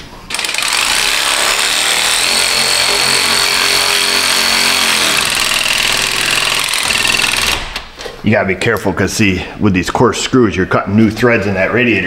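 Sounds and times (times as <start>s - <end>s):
power driver driving a screw: 0.3s - 7.8s.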